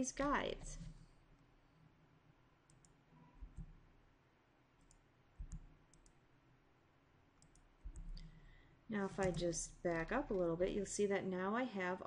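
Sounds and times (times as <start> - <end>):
computer mouse clicks: 2.6 - 3.9, 4.8 - 6.2, 7.4 - 8.4, 9.1 - 10.5
soft low thumps: 3.4 - 3.8, 5.4 - 5.8, 7.8 - 10.7.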